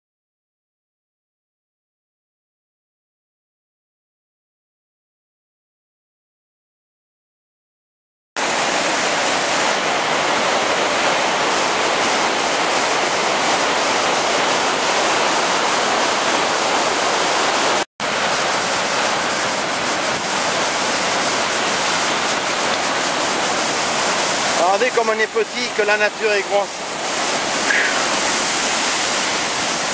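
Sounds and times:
waterfall rushing: 8.4 - 29.9.

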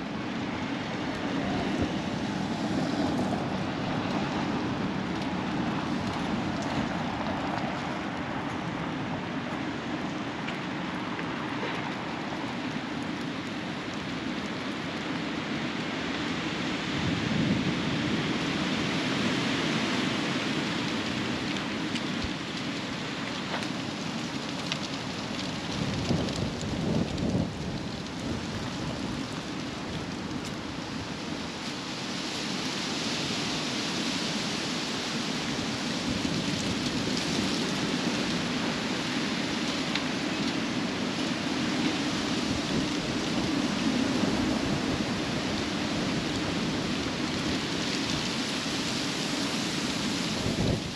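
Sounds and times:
wind buffeting microphone: 25.4 - 30.2, 50.2 - 50.9.

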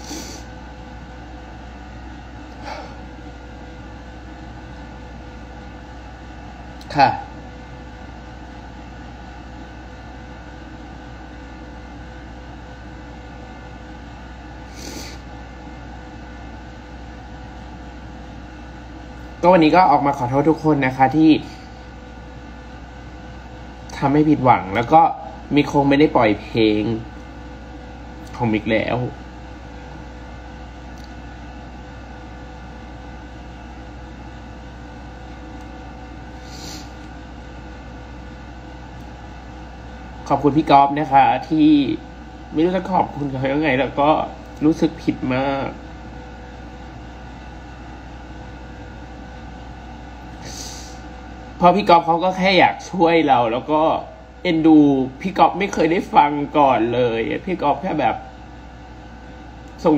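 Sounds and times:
person sniffing: 0.0 - 0.5, 2.6 - 3.0, 14.7 - 15.3, 36.4 - 37.0, 50.4 - 51.0
room hum with hiss: 0.0 - 59.9.

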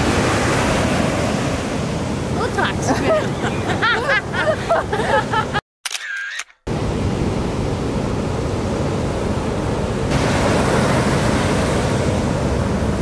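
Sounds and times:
surf breaking on beach: 0.0 - 3.8, 6.7 - 13.0.

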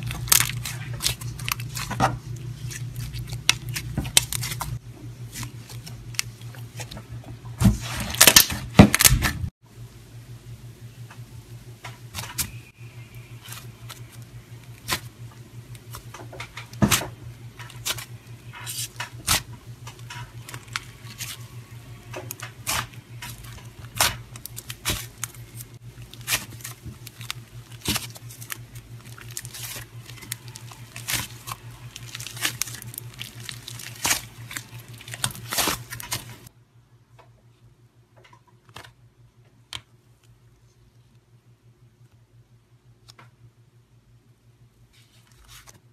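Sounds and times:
slime crackling and popping: 0.0 - 6.9, 22.1 - 36.5
low steady hum: 0.0 - 45.9.

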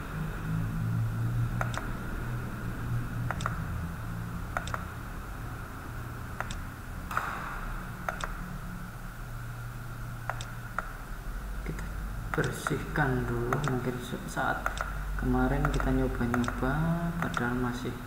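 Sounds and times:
low steady hum: 0.0 - 18.0
computer mouse clicking: 1.6 - 1.9, 3.3 - 3.7, 4.5 - 4.9, 6.4 - 7.3, 8.0 - 8.4, 10.3 - 11.0, 11.7 - 12.8, 13.5 - 14.0, 14.6 - 15.0, 15.6 - 17.6.

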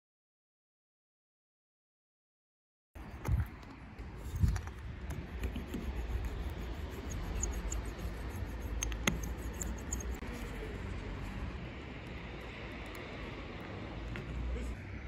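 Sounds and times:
roller rubbing on tape: 4.2 - 10.5
sharp click: 7.1 - 10.2.

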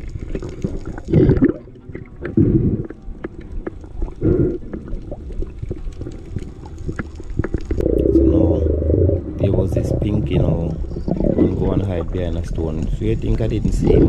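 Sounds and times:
underwater gurgling surges: 0.0 - 2.9, 4.0 - 14.0
sharp underwater clicks: 0.0 - 8.1.

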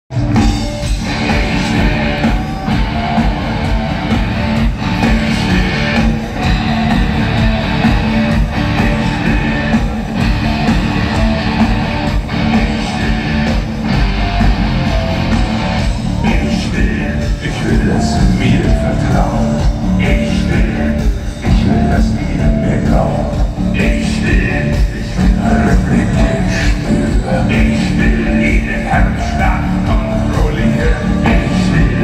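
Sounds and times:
electric guitar: 0.1 - 32.0
live band music: 0.1 - 32.0.

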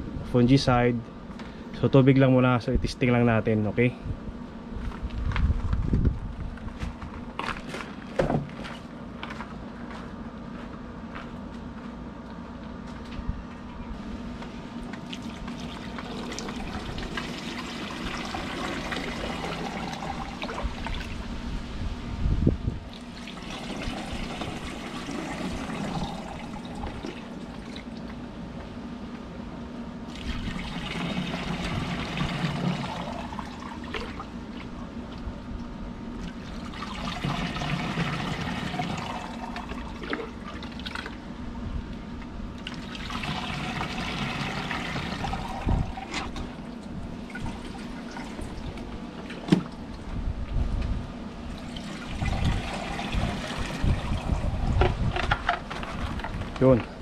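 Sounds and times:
water pouring into plastic tank: 14.8 - 21.2, 22.9 - 28.0, 30.1 - 34.7, 36.2 - 41.2, 42.6 - 49.9, 51.5 - 56.8.

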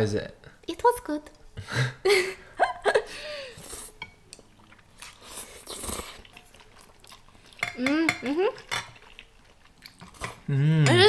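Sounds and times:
chewing: 3.6 - 10.8
person slurping noodles: 4.9 - 7.6.

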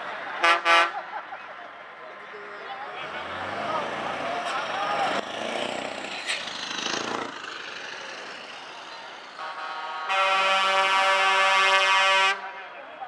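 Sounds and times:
truck air horn blast: 0.4 - 1.0, 9.4 - 12.5.

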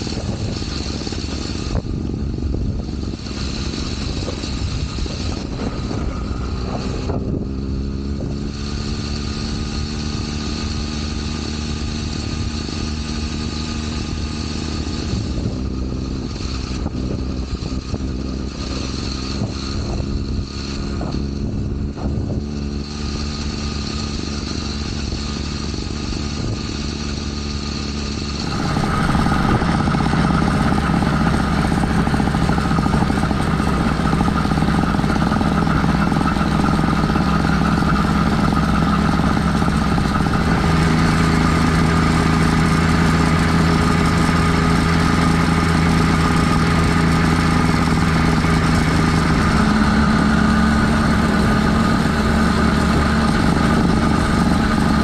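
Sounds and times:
two-stroke engine running: 0.0 - 55.0.

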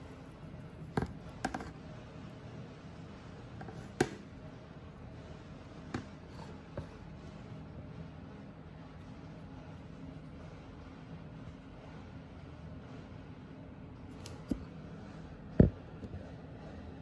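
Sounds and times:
steady low hum: 0.0 - 17.0
plastic clicks and knocks: 0.9 - 1.7.

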